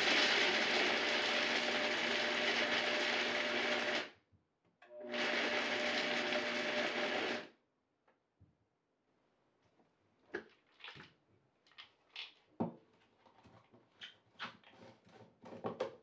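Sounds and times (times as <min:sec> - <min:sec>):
blender motor whirring: 0:00.0 - 0:04.2, 0:04.8 - 0:07.5.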